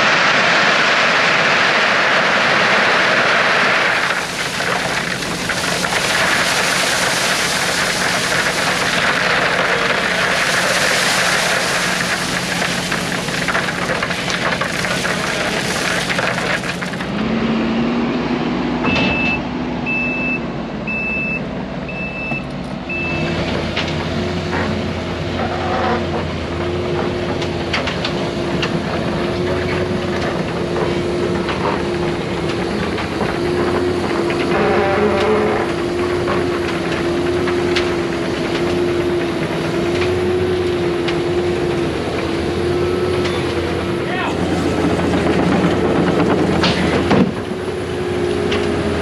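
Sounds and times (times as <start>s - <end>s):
diesel construction machinery: 0.0s - 49.0s
reversing alarm beeps: 18.9s - 23.3s.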